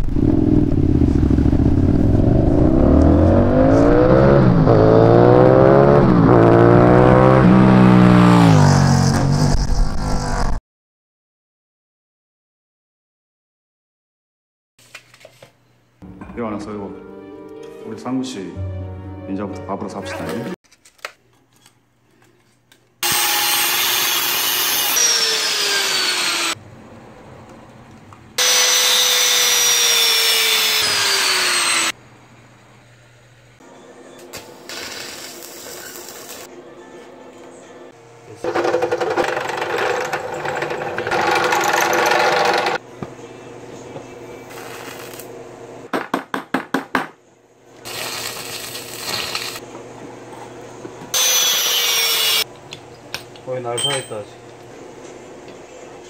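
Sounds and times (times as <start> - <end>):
power tool cutting steel pipe: 23.0 - 26.6, 28.4 - 32.0, 51.2 - 52.4
arc welding crackling hiss: 34.4 - 36.5, 44.5 - 45.3, 47.9 - 49.6.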